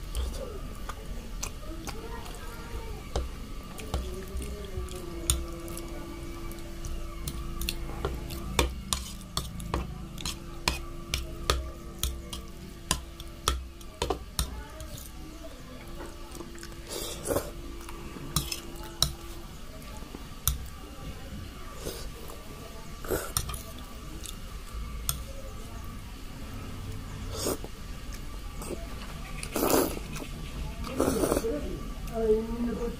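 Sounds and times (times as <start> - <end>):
chewing: 0.0 - 2.5, 16.3 - 20.7, 27.3 - 31.5
fork scraping a plate: 7.3 - 11.2, 18.3 - 19.3, 28.6 - 31.4
slurping noodles: 29.4 - 30.3, 30.9 - 31.4.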